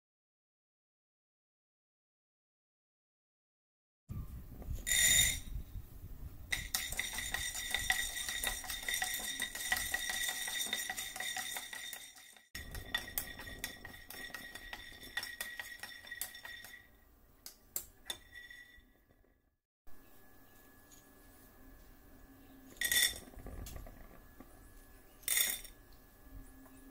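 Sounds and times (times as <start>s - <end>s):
peanuts rattling in a pan: 6.5s - 16.9s
steady high ring: 6.5s - 17.0s.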